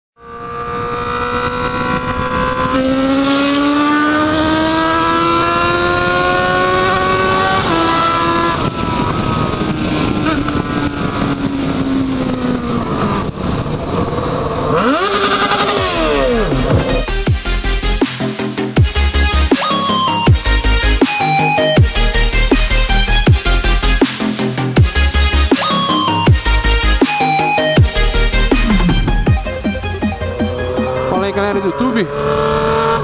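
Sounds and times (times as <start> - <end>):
motorcycle engine accelerating: 0.2 - 33.0
wind rushing on microphone: 0.4 - 17.0.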